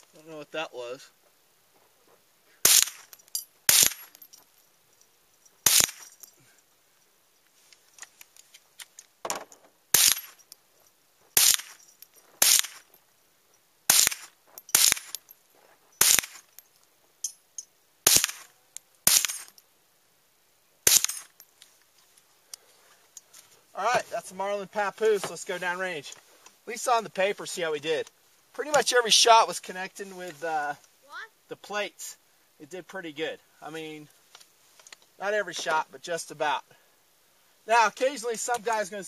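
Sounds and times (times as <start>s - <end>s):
rifle shots: 2.6s - 4.1s, 5.6s - 6.1s, 9.9s - 10.4s, 11.4s - 11.8s, 12.4s - 12.8s, 13.9s - 15.2s, 16.0s - 16.5s, 18.1s - 18.5s, 19.1s - 19.5s, 20.9s - 21.3s.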